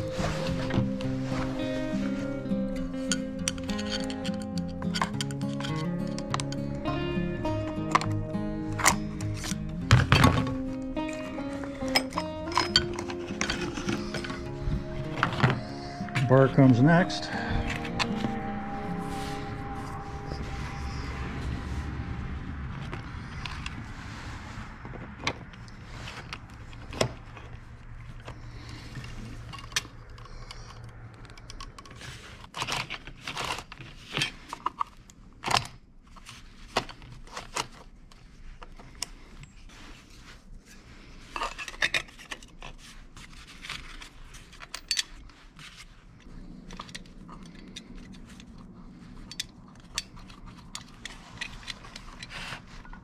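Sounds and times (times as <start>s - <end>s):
metal scraping: 0.0s - 24.7s.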